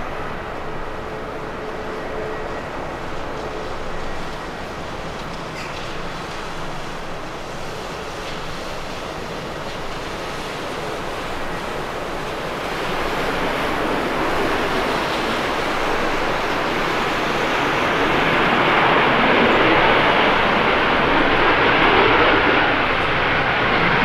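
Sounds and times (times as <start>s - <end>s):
jet engines rushing: 0.0s - 24.0s.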